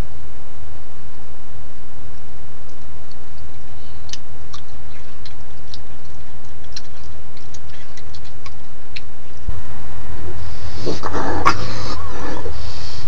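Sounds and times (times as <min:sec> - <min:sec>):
camera recording hum and hiss: 0:00.0 - 0:13.0
faint ticks and clicks: 0:02.2 - 0:09.5.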